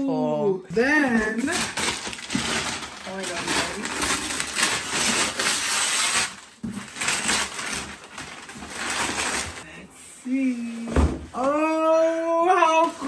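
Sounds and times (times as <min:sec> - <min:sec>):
wrapping paper tearing and rustling: 0:01.0 - 0:09.7.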